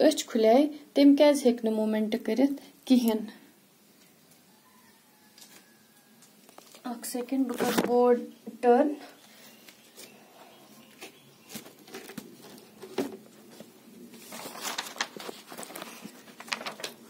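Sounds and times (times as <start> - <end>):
paper rustling: 10.9 - 17.0.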